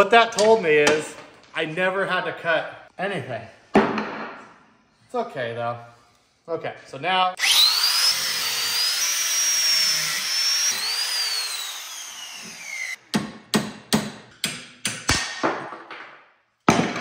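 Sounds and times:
angle grinder cutting steel: 7.4s - 13.0s.

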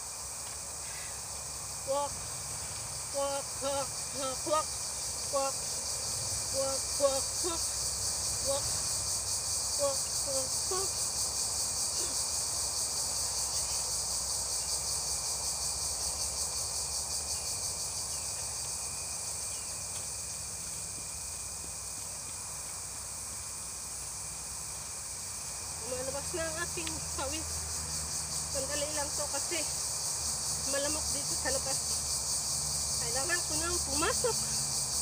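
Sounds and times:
insects chorus pulsing: 0.0s - 35.0s.

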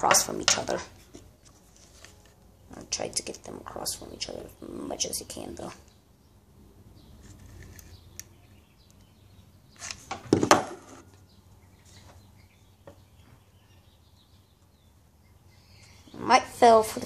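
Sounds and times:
bird chirps: 4.0s - 10.1s, 10.8s - 17.0s.

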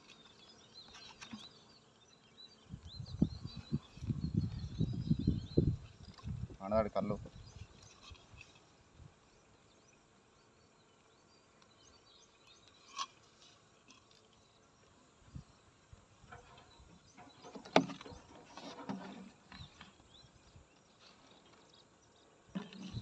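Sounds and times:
rustling and scraping: 0.0s - 1.6s, 5.7s - 8.8s, 12.6s - 14.6s, 16.2s - 21.8s
faint chirping: 0.0s - 23.0s.

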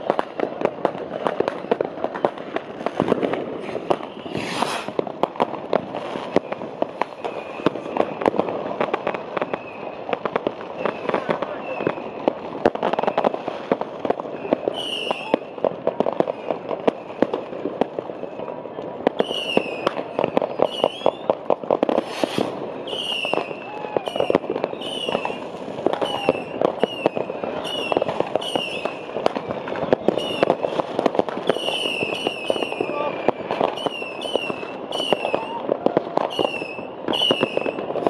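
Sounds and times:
fireworks and firecrackers banging: 0.0s - 38.0s
falling whistles: 14.7s - 15.3s, 19.2s - 19.8s, 20.5s - 21.3s, 22.2s - 25.4s, 26.0s - 29.0s, 30.1s - 30.8s, 31.5s - 33.0s, 33.7s - 35.5s, 36.3s - 37.7s.

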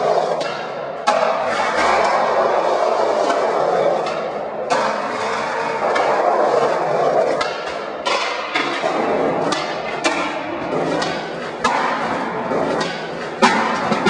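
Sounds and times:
sharp knocks and cracks: 7.3s - 14.0s.

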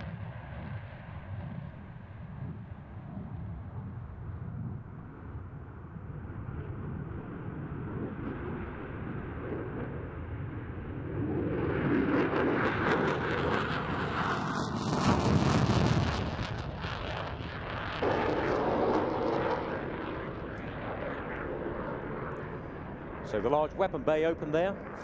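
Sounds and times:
jet engine with afterburner: 0.0s - 25.0s.

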